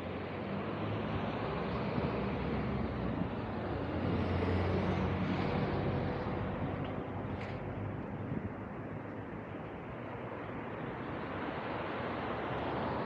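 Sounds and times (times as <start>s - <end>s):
passing vehicles: 0.0s - 13.0s.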